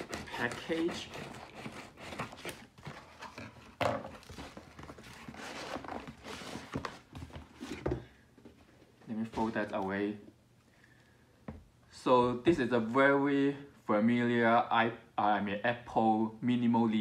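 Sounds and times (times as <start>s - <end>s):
cardboard box being unpacked: 0.0s - 8.1s.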